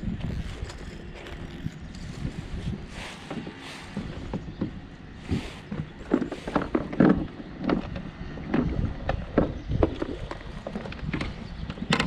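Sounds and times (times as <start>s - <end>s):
light knocks and thumps on kayak: 3.2s - 12.0s.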